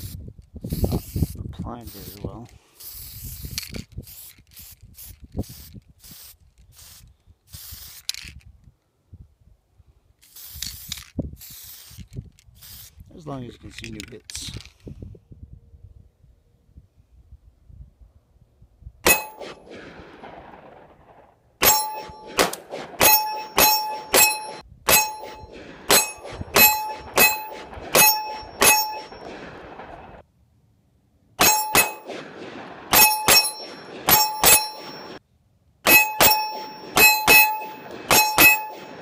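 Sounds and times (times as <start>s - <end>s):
bullets clanging on steel target: 19.1s - 19.6s, 21.6s - 29.3s, 31.4s - 32.1s, 32.9s - 35.2s, 35.9s - 39.0s.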